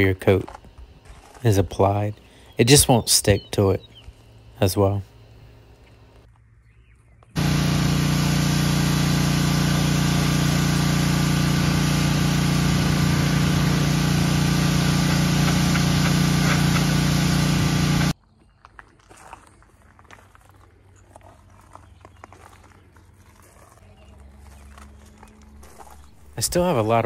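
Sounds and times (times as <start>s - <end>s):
motor-driven machine running: 7.4s - 18.2s.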